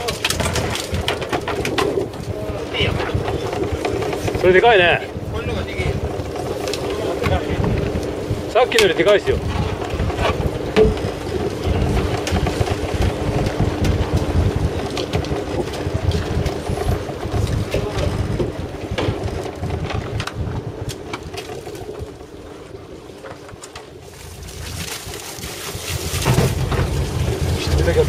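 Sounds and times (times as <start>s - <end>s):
wind buffeting microphone: 0.0s - 28.0s
steady low hum: 0.7s - 24.0s.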